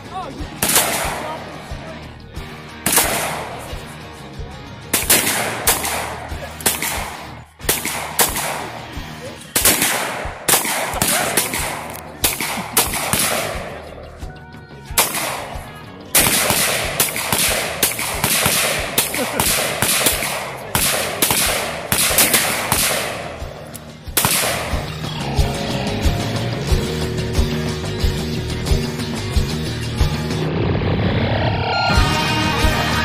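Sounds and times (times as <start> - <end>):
handgun shots: 0.6 - 1.4, 2.9 - 3.8, 4.9 - 13.9, 15.0 - 25.0.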